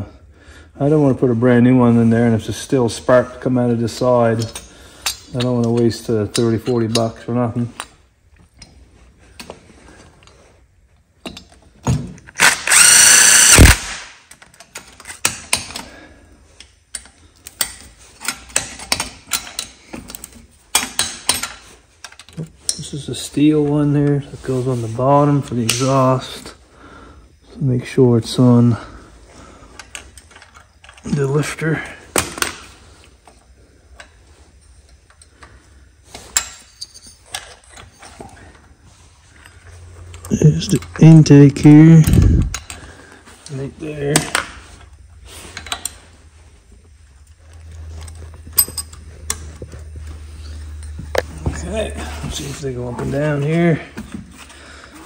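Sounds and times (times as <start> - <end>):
torque wrench ratcheting clicks: 12.3 - 13.9
cordless drill spinning: 12.4 - 13.9.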